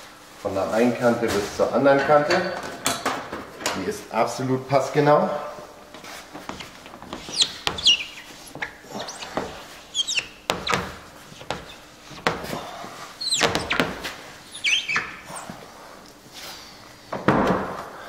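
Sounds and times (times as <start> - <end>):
squeaks of rubbing glossy surface: 6.5 - 12.2, 13.2 - 15.6.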